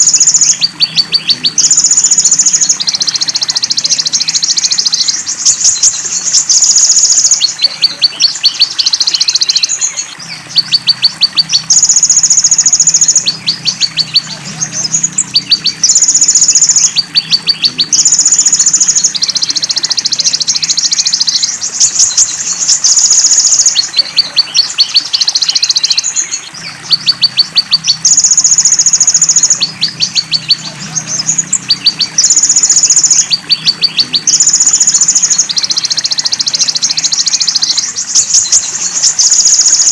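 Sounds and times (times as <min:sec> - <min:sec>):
faint running water: 0:00.0 - 0:39.9
sharp bird chips: 0:00.0 - 0:39.9
bird buzzing trills: 0:05.0 - 0:25.8, 0:38.0 - 0:39.9.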